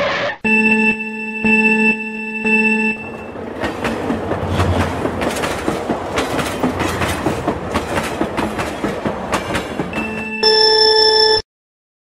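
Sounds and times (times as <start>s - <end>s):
low train rumble: 2.6s - 10.4s
train wheels clattering: 3.1s - 10.2s.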